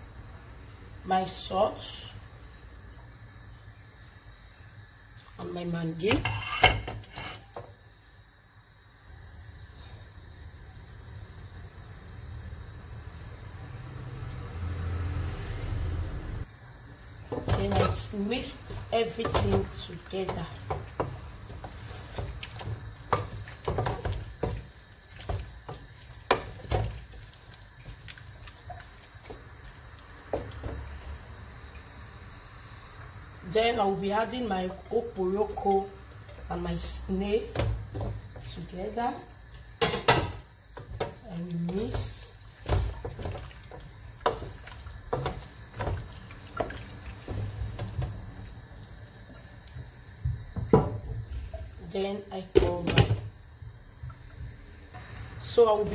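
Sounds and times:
wooden spoon scraping a pot: 0:06.2 - 0:07.6.

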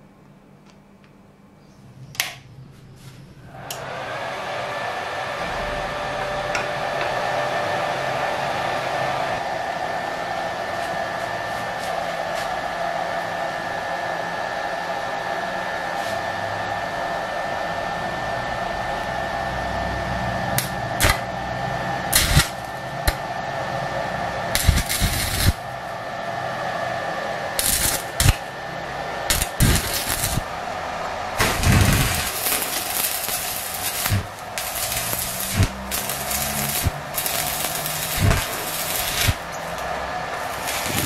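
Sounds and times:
welder humming: 0:03.0 - 0:41.0
welding arc crackles: 0:20.6 - 0:21.3, 0:22.1 - 0:23.2, 0:24.5 - 0:25.9, 0:27.6 - 0:28.5, 0:29.2 - 0:30.7, 0:31.4 - 0:41.0.

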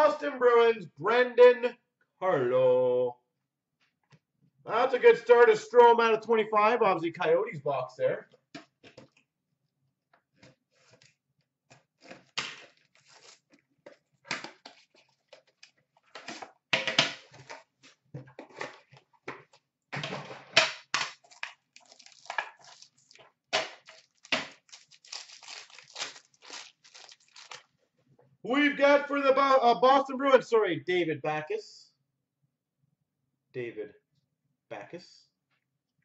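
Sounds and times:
plastic shrink-wrap crinkling: 0:12.6 - 0:13.6, 0:21.1 - 0:27.8.

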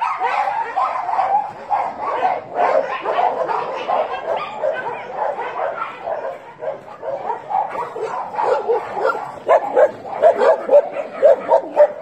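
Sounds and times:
dogs barking and yipping: 0:00.0 - 0:12.0.

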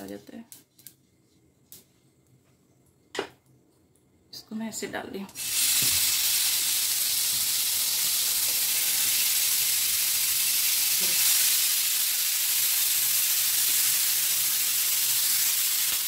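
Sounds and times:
chicken sizzling in oil: 0:05.4 - 0:16.0.

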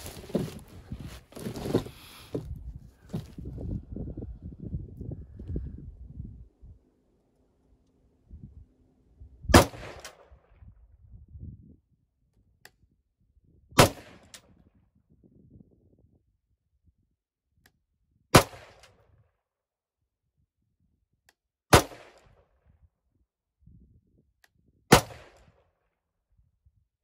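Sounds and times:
rifle shots: 0:09.5 - 0:10.2.

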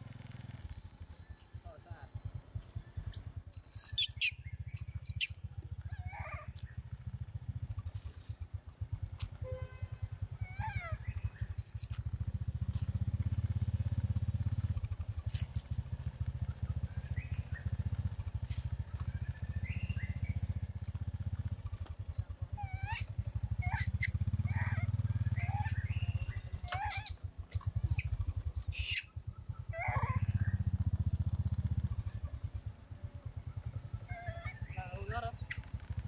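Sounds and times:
high chirps and squeaks: 0:03.1 - 0:05.3, 0:10.4 - 0:12.0, 0:19.7 - 0:20.9, 0:22.1 - 0:29.1, 0:34.1 - 0:35.8
small motorbike engine putt-putting: 0:10.2 - 0:36.0.

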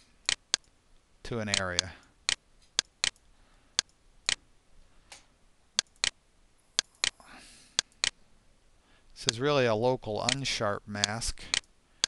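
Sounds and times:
computer mouse clicking: 0:00.2 - 0:00.7, 0:01.5 - 0:03.2, 0:03.8 - 0:04.4, 0:05.8 - 0:06.2, 0:10.2 - 0:10.4, 0:11.0 - 0:11.7.

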